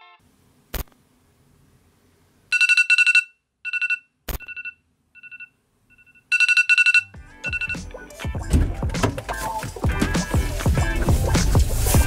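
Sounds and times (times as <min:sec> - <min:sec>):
phone alarm beeping: 0:02.5 - 0:07.9.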